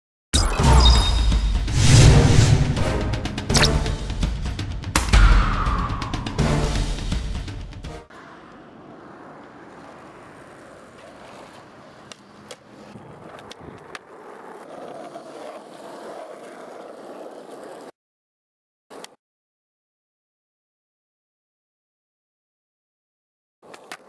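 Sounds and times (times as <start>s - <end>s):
skateboard clacks: 8.1s - 17.9s, 18.9s - 19.2s, 23.6s - 24.0s
skateboard wheels rolling on asphalt: 8.1s - 18.0s, 18.9s - 19.2s, 23.6s - 24.0s.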